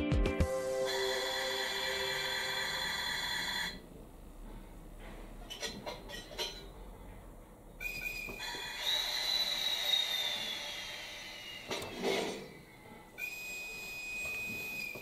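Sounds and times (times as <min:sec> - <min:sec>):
electric locomotive whistle: 0:00.6 - 0:03.8, 0:08.4 - 0:11.8.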